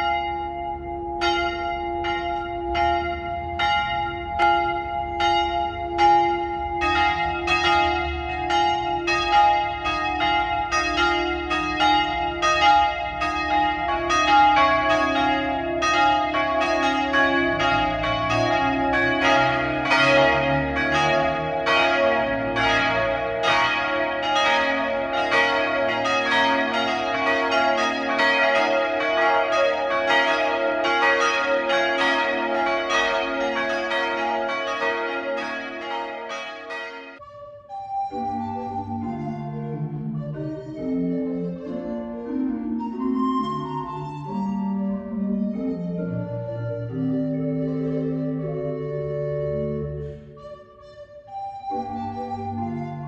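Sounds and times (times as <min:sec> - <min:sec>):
church bells ringing: 0:00.0 - 0:37.2.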